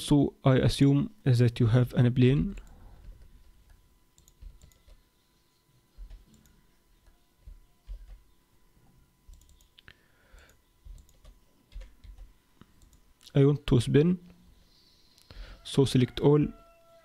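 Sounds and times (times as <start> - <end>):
keyboard and mouse clicks: 2.6 - 5.0, 9.3 - 13.3.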